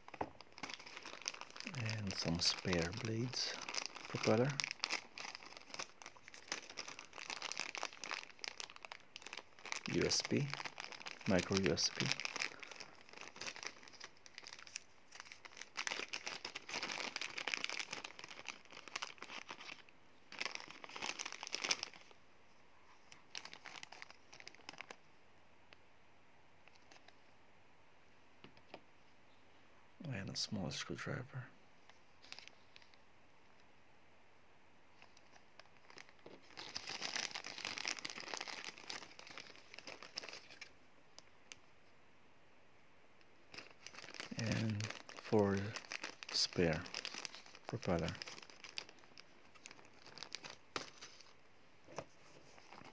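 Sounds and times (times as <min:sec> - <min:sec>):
plastic bag crinkling: 0:00.0 - 0:22.2, 0:23.0 - 0:25.0, 0:32.2 - 0:33.0, 0:35.0 - 0:41.3, 0:43.5 - 0:52.9.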